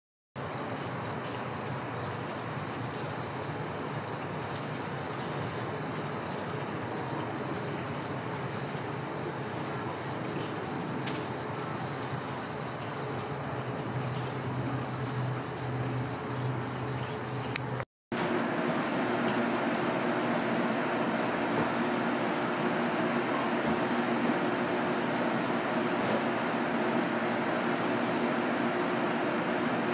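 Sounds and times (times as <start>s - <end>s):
insects trilling: 0.4s - 17.8s
pulsing insect call: 0.4s - 17.8s.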